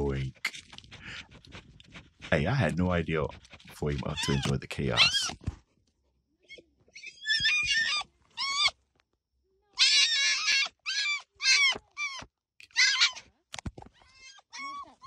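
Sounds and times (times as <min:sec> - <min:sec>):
fox yelping and whining: 0:03.4 - 0:05.4, 0:06.4 - 0:08.8, 0:09.7 - 0:13.3, 0:14.0 - 0:15.0.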